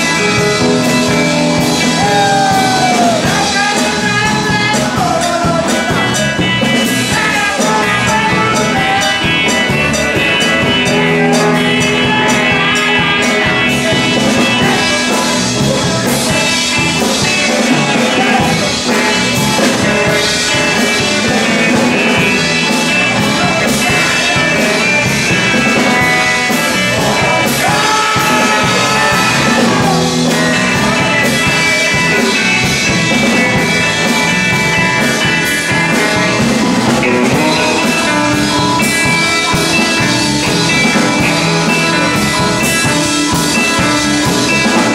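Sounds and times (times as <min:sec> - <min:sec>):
bass guitar: 0:00.0 - 0:44.9
drum kit: 0:00.0 - 0:44.9
electric guitar: 0:00.0 - 0:44.9
person singing: 0:00.0 - 0:44.9.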